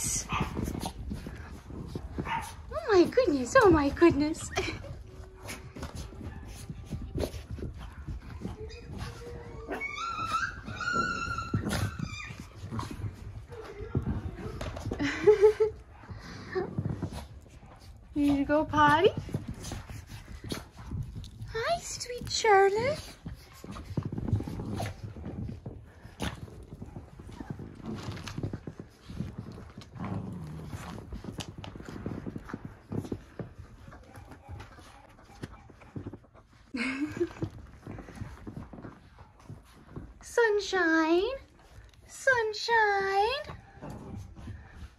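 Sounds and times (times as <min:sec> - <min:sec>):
puppies scrambling and scuffling: 0:00.0 - 0:44.9
puppies whining and yipping: 0:07.5 - 0:15.4.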